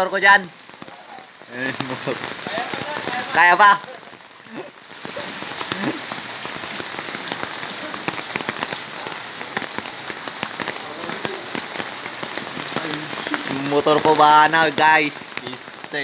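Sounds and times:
heavy rain on floodwater: 0:00.0 - 0:16.0.

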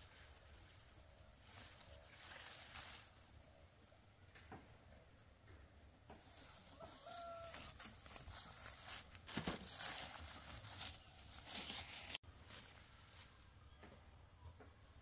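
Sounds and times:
rustling and crackling: 0:00.0 - 0:04.8, 0:06.1 - 0:13.4
chicken call: 0:06.6 - 0:07.8.

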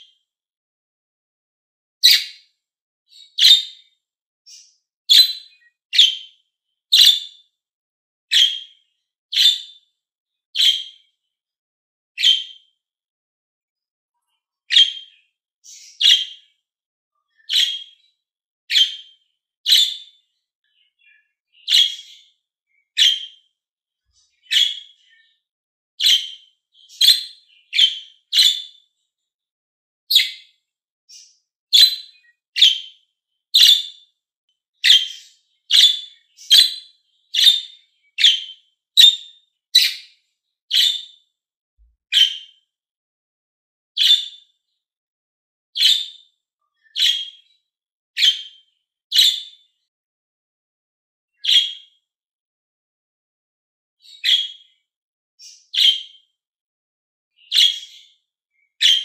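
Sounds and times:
budgerigar chirping: 0:02.0 - 0:02.4, 0:03.1 - 0:03.8, 0:04.5 - 0:06.3, 0:06.9 - 0:07.3, 0:08.3 - 0:08.7, 0:09.3 - 0:09.7, 0:10.6 - 0:11.0, 0:12.2 - 0:12.5, 0:14.7 - 0:16.4, 0:17.5 - 0:18.0, 0:18.7 - 0:19.1, 0:19.7 - 0:20.1, 0:21.6 - 0:22.2, 0:23.0 - 0:23.4, 0:24.4 - 0:25.0, 0:26.0 - 0:28.8, 0:30.1 - 0:30.4, 0:31.1 - 0:33.0, 0:33.6 - 0:34.0, 0:34.8 - 0:40.1, 0:40.7 - 0:41.1, 0:42.1 - 0:42.4, 0:44.0 - 0:44.4, 0:45.8 - 0:46.2, 0:47.0 - 0:47.4, 0:48.2 - 0:49.5, 0:55.4 - 0:56.1, 0:57.5 - 0:58.0, 0:58.8 - 0:59.0.

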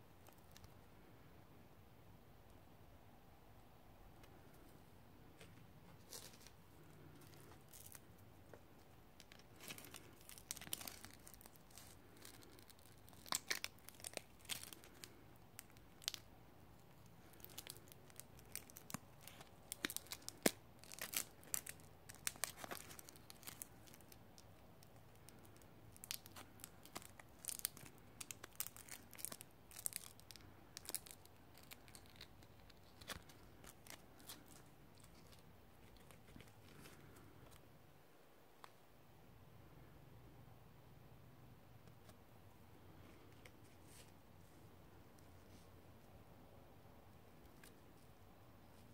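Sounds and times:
velcro ripping apart: 0:09.3 - 0:16.2, 0:17.2 - 0:24.1.

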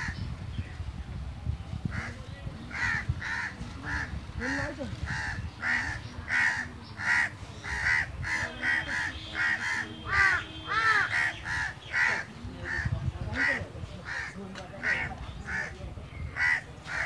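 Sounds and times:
crows cawing: 0:02.7 - 0:15.7, 0:16.4 - 0:17.0.

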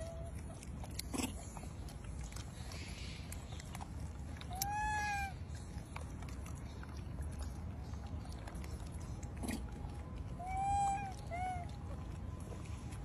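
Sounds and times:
low background rumble: 0:00.0 - 0:13.0
baby monkey crying call: 0:04.5 - 0:05.4, 0:10.4 - 0:11.8.

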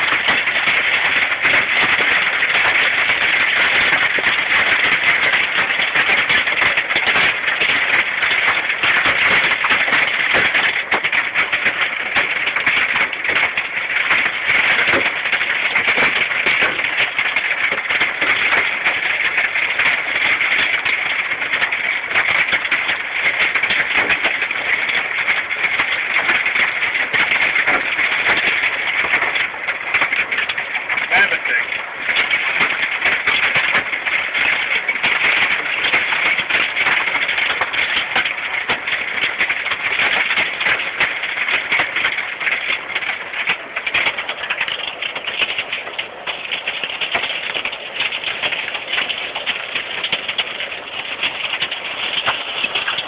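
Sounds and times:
hail clattering: 0:00.0 - 0:53.0.

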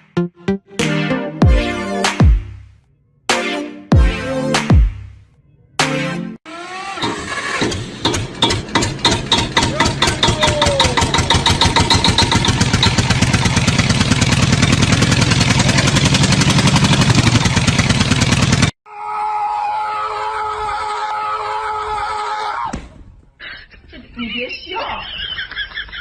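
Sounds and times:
engine starting and running: 0:06.4 - 0:18.8.

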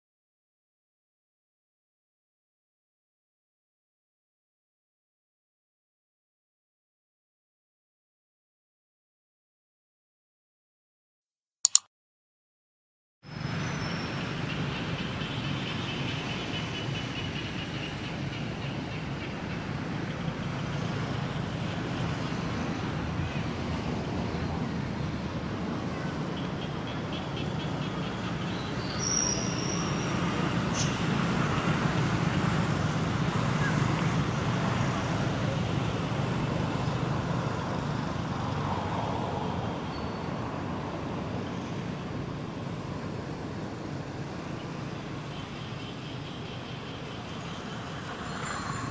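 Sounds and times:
outdoor background rumble with hiss: 0:13.3 - 0:48.9.

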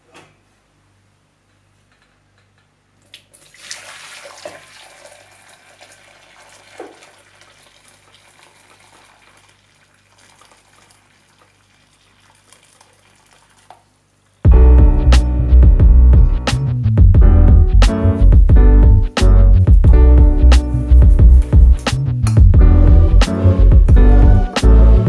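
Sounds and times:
water pouring into glass bowl: 0:03.3 - 0:13.8.

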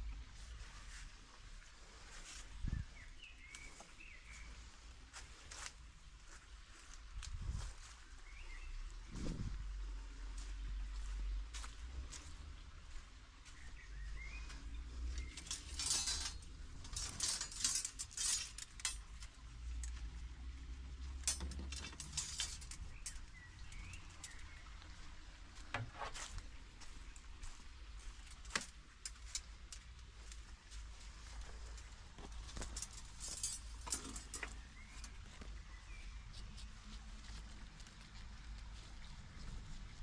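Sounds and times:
bird chirping: 0:13.5 - 0:18.9, 0:21.8 - 0:25.1, 0:34.0 - 0:36.9
metal stakes clattering: 0:14.6 - 0:20.2, 0:21.0 - 0:24.6, 0:28.2 - 0:35.5.

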